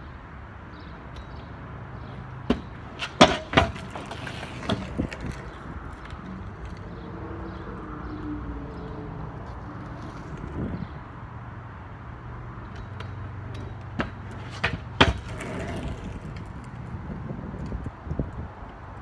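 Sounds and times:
scooter landing on concrete: 2.4s - 7.0s, 12.6s - 16.9s
scooter wheels knocking rolling: 2.4s - 7.0s, 12.7s - 18.4s.

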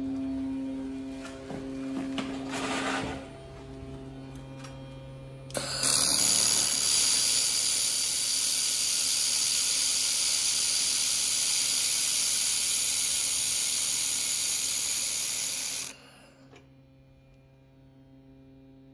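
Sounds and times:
low machine hum: 0.0s - 18.9s
laser welding gun hissing: 5.5s - 16.3s.

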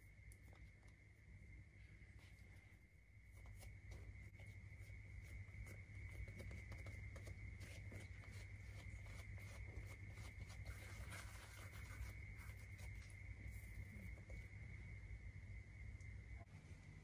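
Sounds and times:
steady low hum: 0.0s - 17.0s
hands rubbing and tapping dough: 3.2s - 14.4s.

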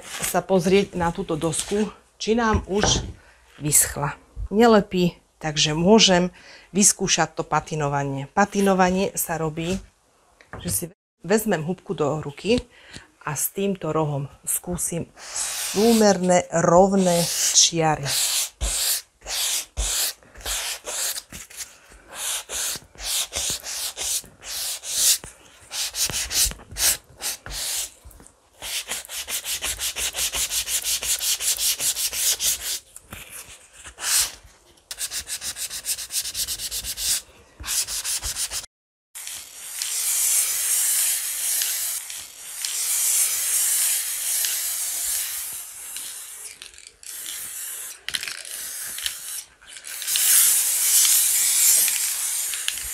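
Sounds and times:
sanding sponge rubbing wood: 15.2s - 16.3s, 16.9s - 28.0s, 28.6s - 32.8s, 34.9s - 38.7s
aerosol spray can hissing: 22.1s - 28.0s, 39.2s - 46.5s, 47.1s - 52.9s.

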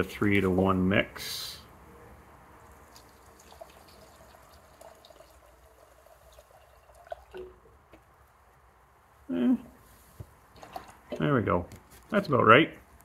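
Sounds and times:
liquid trickling into plastic cup: 2.6s - 7.8s, 10.5s - 11.2s
small drips: 2.6s - 8.1s, 10.5s - 11.2s.

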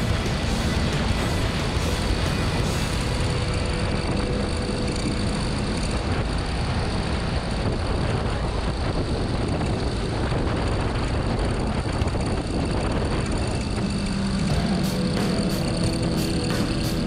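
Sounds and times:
motorcycle engine running: 0.0s - 17.0s
wind noise: 0.0s - 17.0s.

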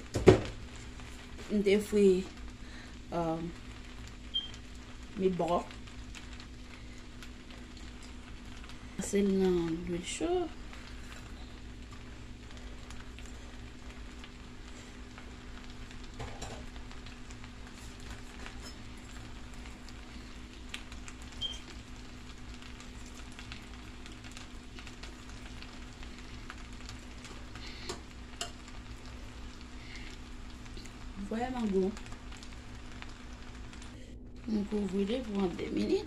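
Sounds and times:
faint food sizzling: 0.0s - 36.0s
low steady hum: 0.0s - 36.0s.

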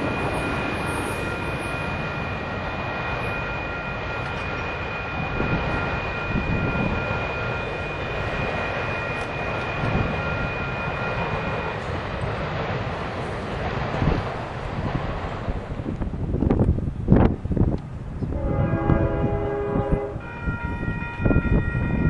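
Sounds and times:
thin high whine: 0.0s - 12.0s
steady low rumble: 0.0s - 20.2s.

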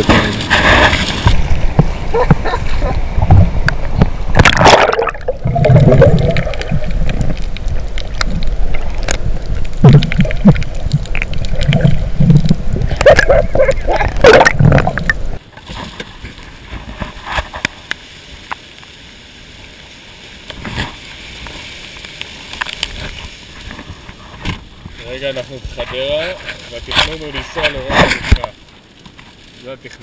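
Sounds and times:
underwater gurgling and sloshing: 0.0s - 29.6s
steady hiss: 15.2s - 30.0s.

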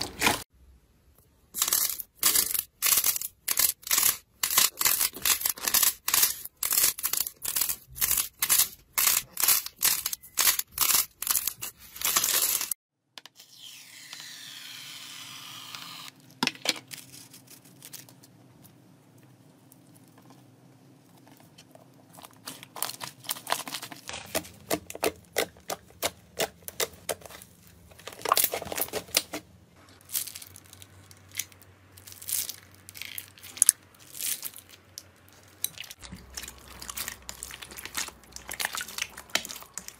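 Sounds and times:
wet slime squishing: 32.1s - 39.9s.

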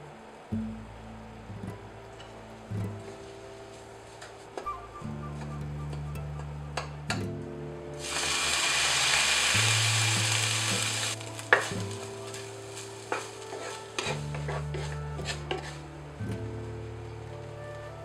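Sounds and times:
background music: 0.0s - 18.0s
loud sizzle in a pan: 8.0s - 15.8s
spatula scraping and tapping pan: 11.4s - 15.8s.

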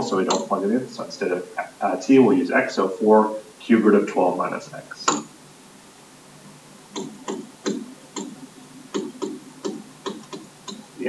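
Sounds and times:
stylus tapping on tablet screen: 6.9s - 10.9s.

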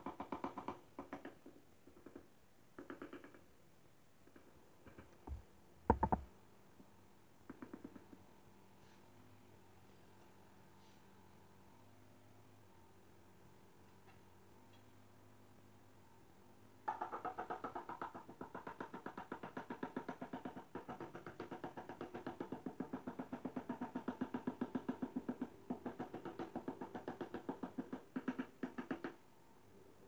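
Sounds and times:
hammer tapping on ceramic tiles: 0.0s - 3.4s, 4.2s - 6.3s, 16.9s - 29.2s.

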